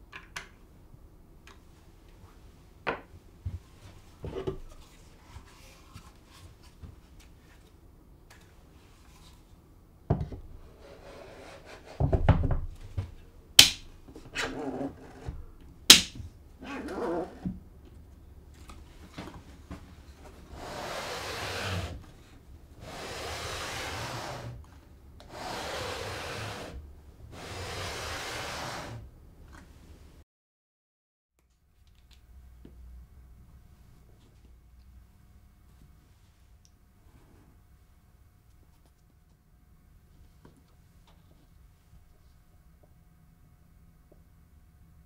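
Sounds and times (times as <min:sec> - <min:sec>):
wooden knocks and clunks: 0:12.0 - 0:13.2
wood sliding on wood: 0:20.4 - 0:22.1, 0:22.8 - 0:24.6, 0:25.2 - 0:29.0.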